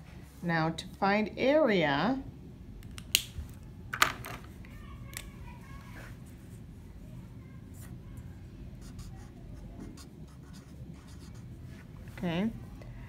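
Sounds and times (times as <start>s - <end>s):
marker writing on paper: 8.8s - 11.5s.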